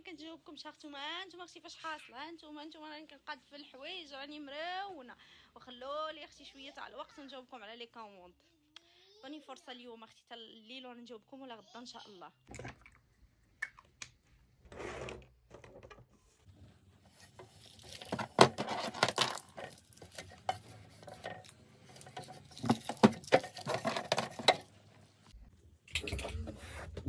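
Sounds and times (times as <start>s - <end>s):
small items clattering: 17.1s - 24.8s.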